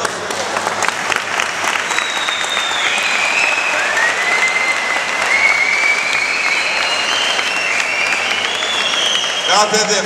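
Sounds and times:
audience clapping: 0.0 - 10.0
long high whistles: 1.8 - 9.8.

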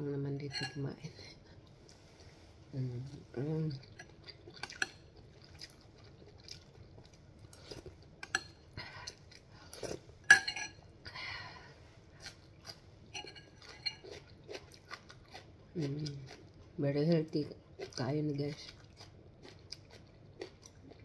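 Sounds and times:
metal spoon clinking on glass bowl: 10.3 - 10.8.

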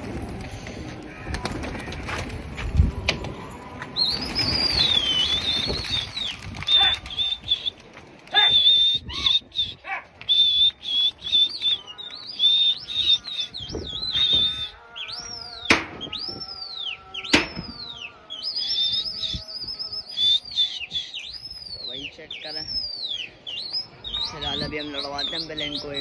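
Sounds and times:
pigeon wings flapping: 0.0 - 3.4, 4.0 - 8.8.

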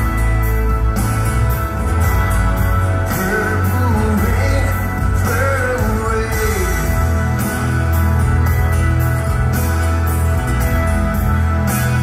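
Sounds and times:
bass backing: 0.0 - 12.0
guitar: 0.0 - 12.0
man singing: 3.0 - 7.4.

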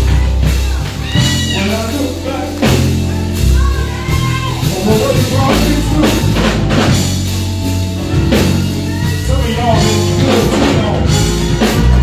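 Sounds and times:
bass guitar low notes: 0.0 - 12.0
church band playing: 0.0 - 12.0.

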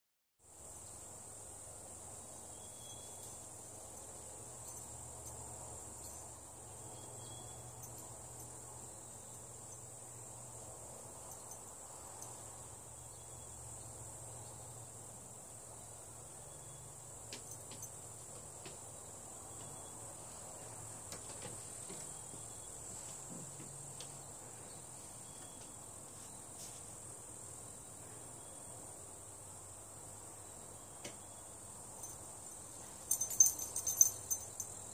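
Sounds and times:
insect chorus trilling: 30.5 - 34.9.

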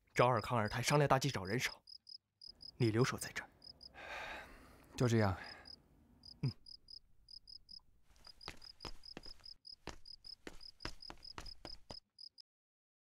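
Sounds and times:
crickets chirping: 0.4 - 4.5, 5.3 - 12.4
footsteps on stone path: 8.0 - 12.0.

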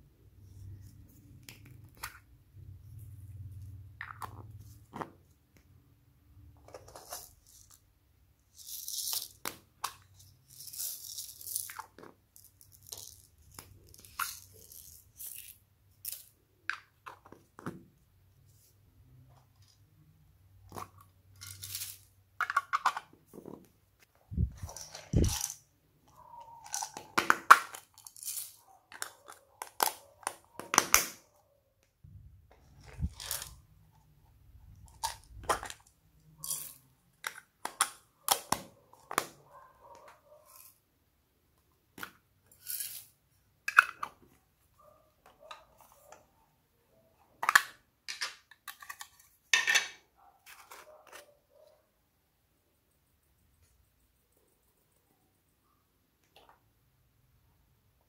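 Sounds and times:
plastic containers clicking open: 43.7 - 44.3.

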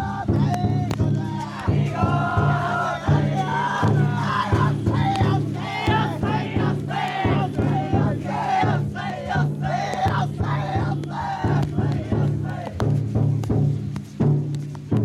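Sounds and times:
crowd shouting rhythmic calls: 0.0 - 13.2
large taiko drum beating: 0.0 - 15.0.

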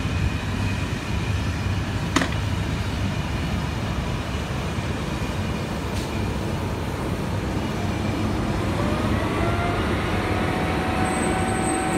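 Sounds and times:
electric locomotive rumbling: 0.0 - 11.9
rising whine: 7.8 - 11.9.

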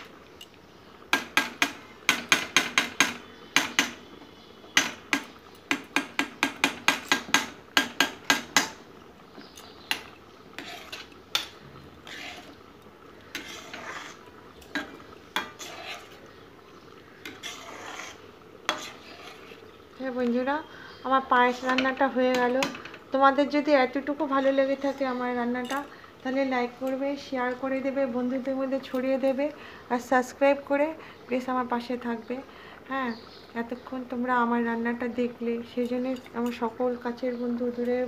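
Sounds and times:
spoon scraping pan: 1.1 - 20.5, 21.4 - 29.4, 35.5 - 38.0
spoon clinking against metal pan: 25.5 - 25.9, 35.7 - 36.8.

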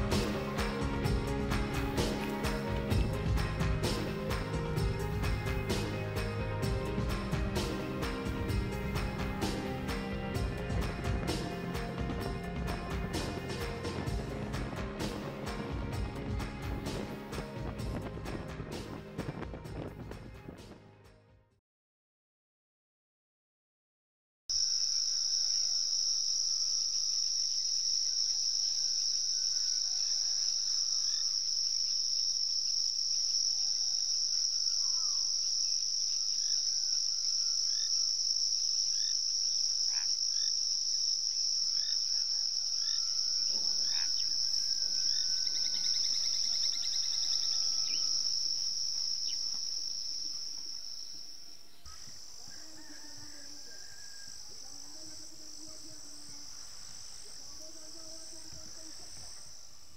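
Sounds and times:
crickets trilling: 24.5 - 59.9.

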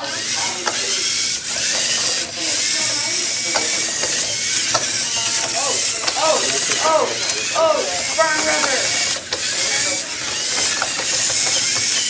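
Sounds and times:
robot motors and gears whirring: 0.0 - 12.0.

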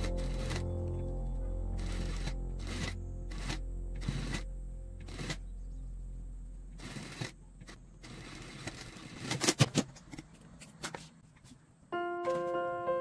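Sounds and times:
sewing machine motor humming: 0.0 - 0.7, 1.8 - 4.4, 5.0 - 5.4, 6.7 - 9.3.

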